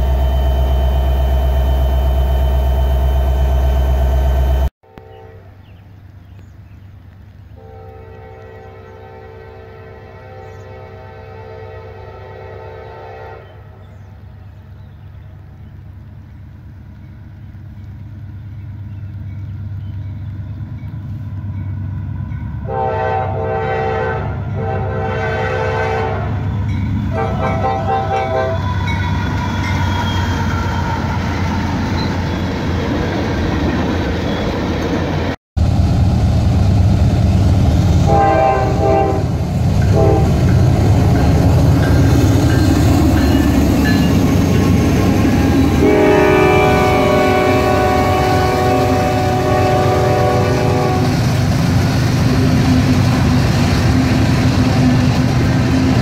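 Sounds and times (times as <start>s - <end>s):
freight train rumble: 0.0s - 56.0s
train air horn blasts: 4.8s - 5.6s, 7.6s - 13.8s, 22.6s - 26.4s, 27.1s - 29.9s, 38.0s - 41.4s, 45.2s - 51.3s.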